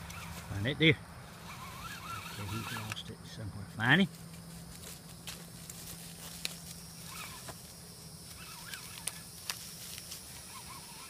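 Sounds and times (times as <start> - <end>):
faint wavering calls: 1.2 - 3.0, 6.6 - 11.0
footsteps through dry leaves: 4.1 - 7.8.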